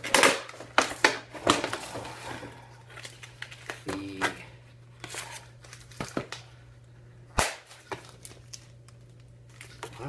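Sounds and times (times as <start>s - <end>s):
plastic packaging cracking: 0.0s - 2.1s, 7.4s - 10.0s.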